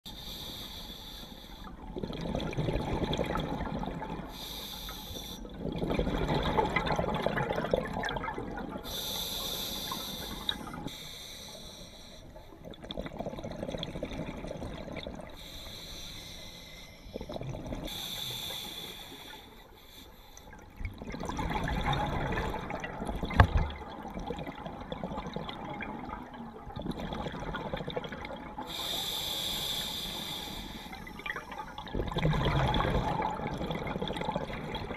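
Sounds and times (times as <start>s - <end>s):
regulator inhale hiss: 0.1s - 1.8s, 4.3s - 5.5s, 8.8s - 12.5s, 15.4s - 17.2s, 17.9s - 20.6s, 28.6s - 31.5s.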